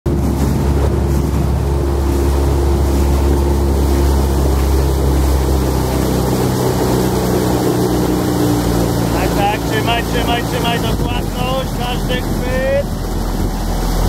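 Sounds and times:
motorboat engine humming: 0.0 - 14.0
water and wind noise: 0.0 - 14.0.

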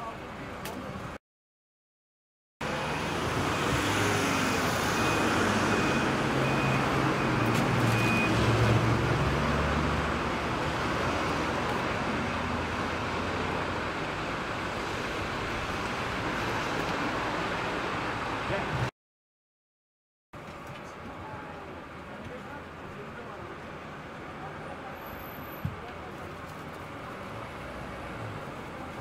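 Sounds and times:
road traffic noise: 0.0 - 1.2, 2.6 - 18.9, 20.4 - 29.0
faint high beep: 4.2 - 8.4.

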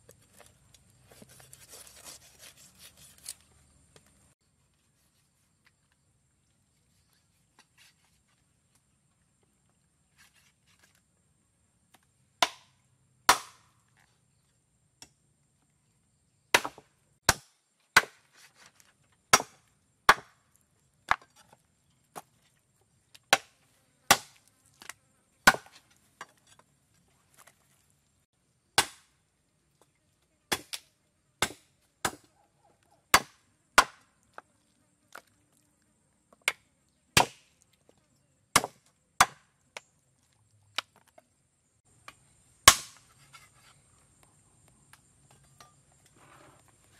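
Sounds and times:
cleaver chopping on wooden block: 13.3 - 13.6, 25.4 - 25.8, 33.1 - 34.1.

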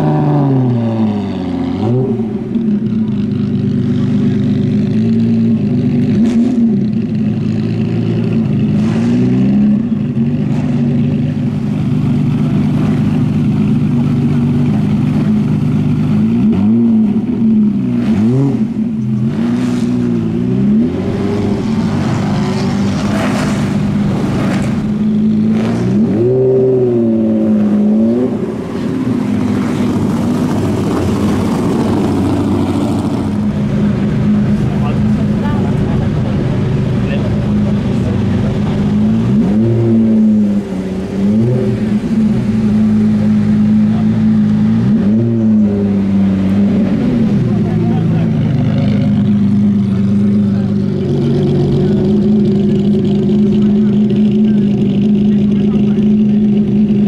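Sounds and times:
engine throttle blips: 0.0 - 57.0
car engine idling: 0.3 - 57.0.

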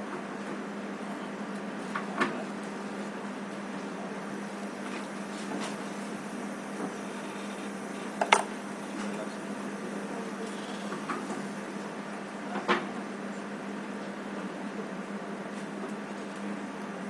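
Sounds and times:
steady low hum: 0.0 - 14.2.

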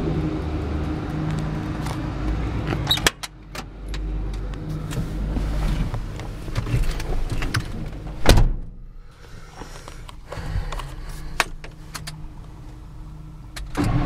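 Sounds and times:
low steady rumble: 0.0 - 14.0
loud thump: 8.2 - 8.8.

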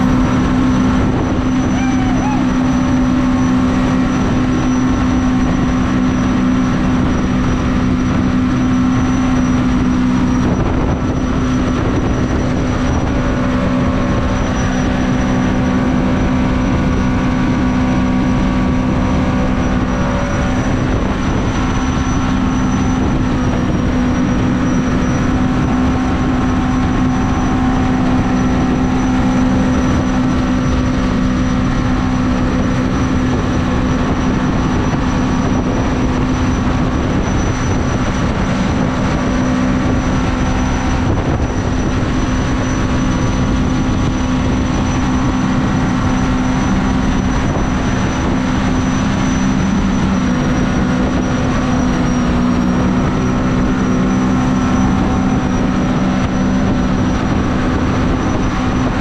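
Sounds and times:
jet boat engine running: 0.0 - 59.0.

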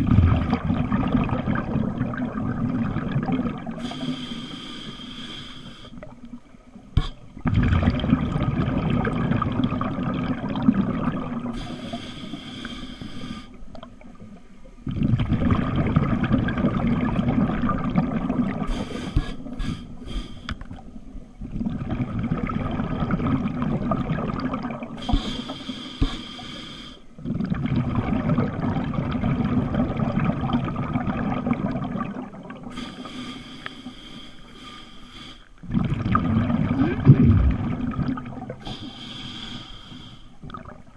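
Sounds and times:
exhaled bubbles rushing: 0.0 - 3.9, 7.3 - 11.5, 14.8 - 18.7, 21.4 - 25.0, 27.2 - 32.7, 35.6 - 38.6
regulator inhale hiss: 3.8 - 6.1, 11.5 - 13.6, 18.7 - 20.7, 25.0 - 27.2, 32.7 - 35.6, 38.6 - 40.4.

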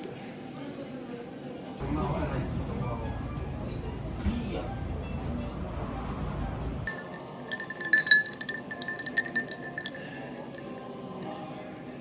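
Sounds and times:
ice cubes clinking in glass: 6.9 - 11.4.

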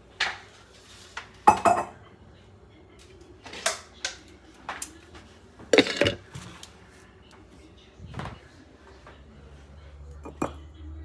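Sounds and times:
kitchen items clinking and knocking: 5.6 - 6.6.

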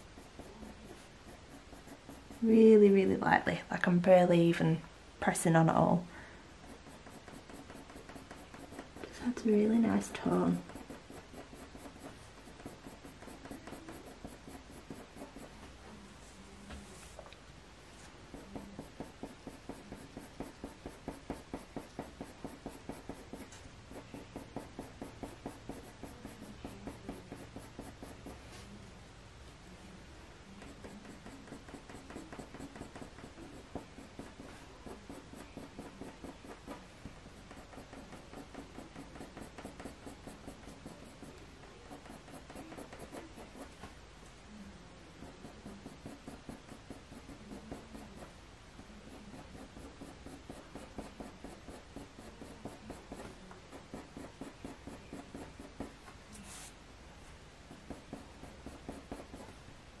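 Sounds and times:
coloured pencil scratching on paper: 0.0 - 3.1, 6.6 - 17.2, 17.9 - 28.8, 30.4 - 43.8, 45.1 - 56.8, 57.7 - 59.6.

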